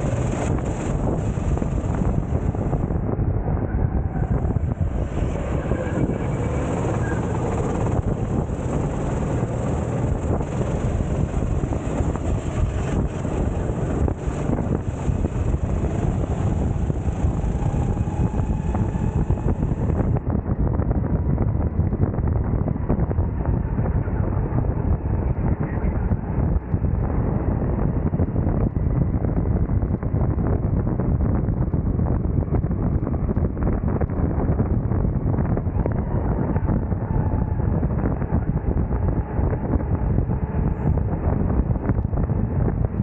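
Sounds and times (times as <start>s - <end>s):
go-kart engine racing: 0.0s - 20.2s
wind buffeting on microphone: 0.0s - 43.0s.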